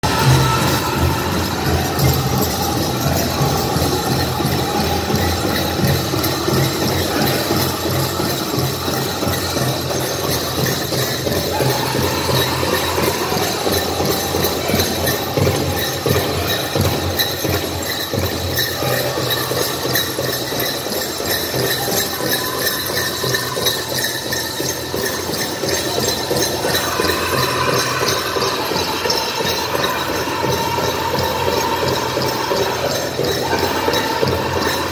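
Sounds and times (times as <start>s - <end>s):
big drum beating: 0.0s - 19.9s
jingling: 0.0s - 34.9s
people singing: 0.0s - 34.9s.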